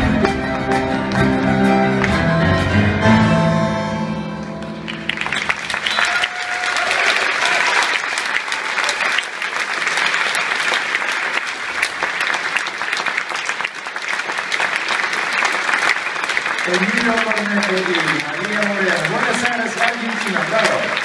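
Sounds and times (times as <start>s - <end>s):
live ensemble music: 0.0s - 6.5s
audience applause: 4.6s - 21.0s.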